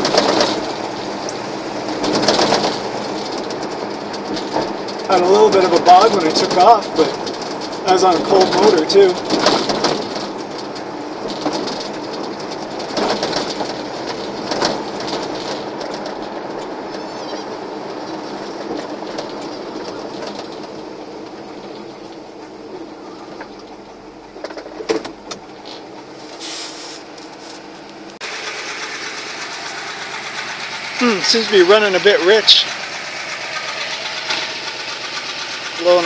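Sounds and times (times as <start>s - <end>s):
pickup engine running: 0.0s - 36.0s
road noise: 0.0s - 36.0s.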